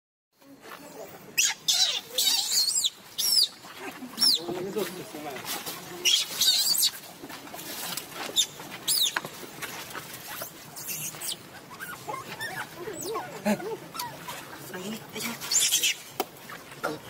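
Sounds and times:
dry leaves rustling: 0:00.5 - 0:16.7
monkeys squealing: 0:01.3 - 0:04.5, 0:06.0 - 0:07.1, 0:08.3 - 0:14.6, 0:15.2 - 0:16.1.

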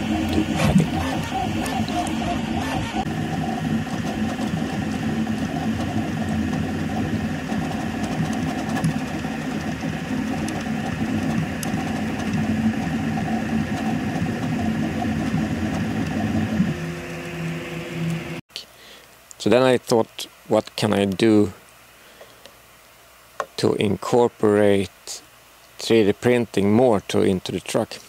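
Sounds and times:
printer stepper motors buzzing: 0:00.0 - 0:18.4.

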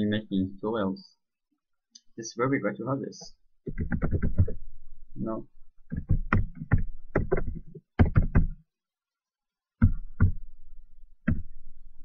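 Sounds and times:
computer keyboard key strikes: 0:05.9 - 0:08.6.

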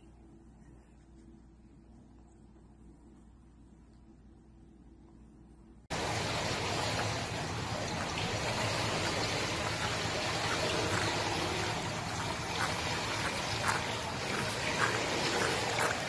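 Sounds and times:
light water splashes: 0:05.9 - 0:16.0
pool water rushing and trickling: 0:05.9 - 0:16.0.

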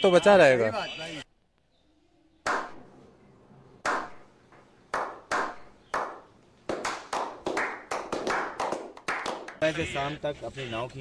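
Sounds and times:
people clapping: 0:04.9 - 0:09.7.

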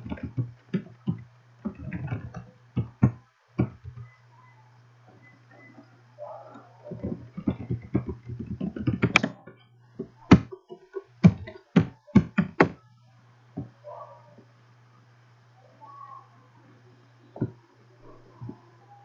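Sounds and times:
keyboard typing: 0:00.0 - 0:04.1, 0:06.5 - 0:09.4, 0:10.0 - 0:12.8
faint low hum: 0:00.0 - 0:19.0.

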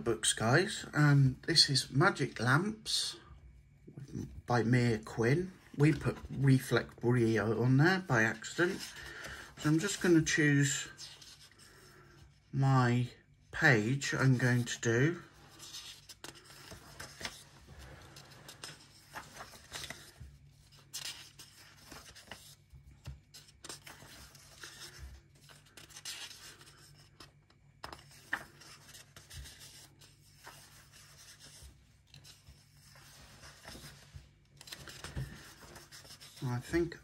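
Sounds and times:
pages turning: 0:04.6 - 0:12.0, 0:14.0 - 0:37.0.

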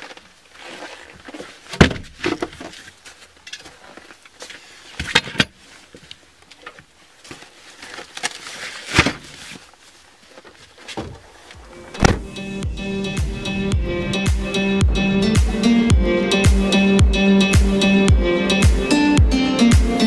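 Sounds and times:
bags thumping on car floor: 0:11.9 - 0:12.4.

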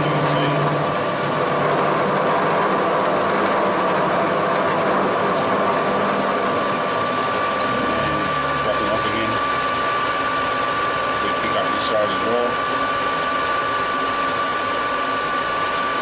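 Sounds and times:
milling machine cutting metal: 0:00.0 - 0:15.8.

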